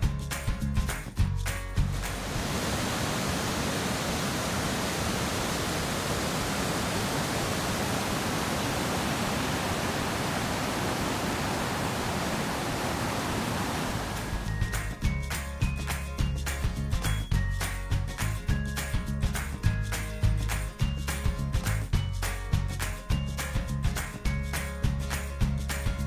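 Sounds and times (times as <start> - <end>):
creek rushing over rocks: 1.9 - 15.0.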